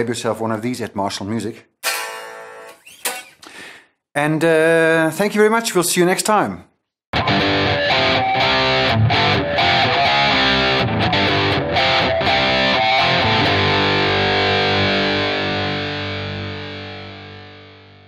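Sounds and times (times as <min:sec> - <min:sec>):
distorted electric guitar chords: 0:01.8 - 0:02.8, 0:07.2 - 0:18.0.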